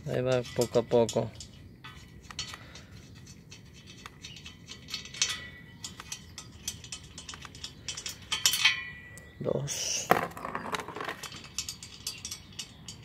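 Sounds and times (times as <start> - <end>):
metallic clicks of bolts unscrewing: 0.1 - 9.2, 10.6 - 13.0.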